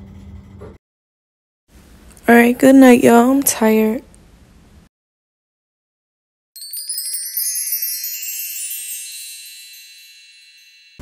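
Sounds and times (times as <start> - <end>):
sparkling chime sound effect: 6.6 - 11.0.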